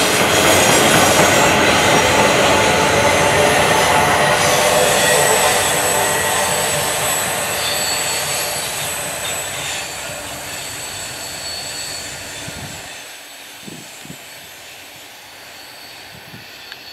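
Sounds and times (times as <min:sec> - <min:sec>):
train wheels clattering over rail joints: 0:00.0 - 0:13.1
faint high squeal: 0:02.7 - 0:16.9.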